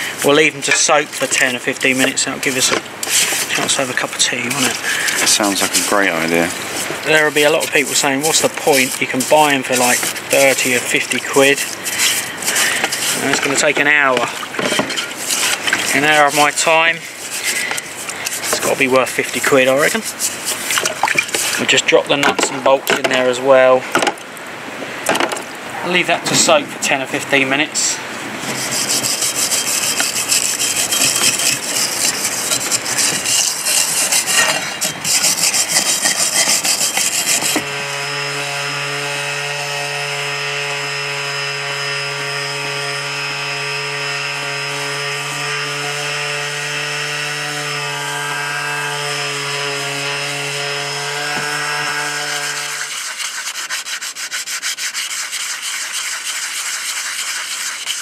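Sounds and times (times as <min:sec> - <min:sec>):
angle grinder on steel: 0:00.0 - 0:20.7, 0:28.4 - 0:58.0
sanding sponge rubbing metal: 0:00.0 - 0:21.9, 0:28.4 - 0:58.0
harsh scraping: 0:00.0 - 0:23.4, 0:26.0 - 0:40.4, 0:43.9 - 0:58.0.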